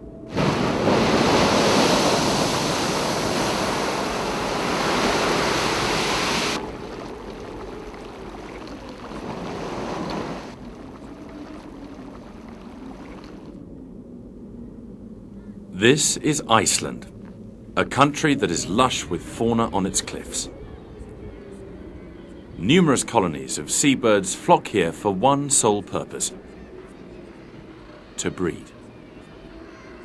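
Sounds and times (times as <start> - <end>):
geyser steam rushing and hissing: 0.3 - 13.4.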